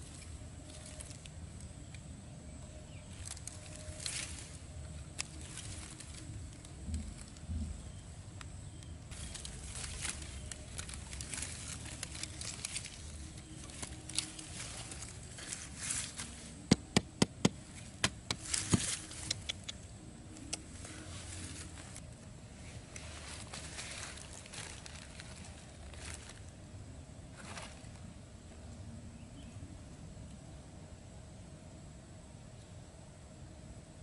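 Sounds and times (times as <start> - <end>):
scratchy handling and rustling: 9.1 - 19.6, 20.4 - 26.5
hammer knocking wooden stake: 16.7 - 19.0.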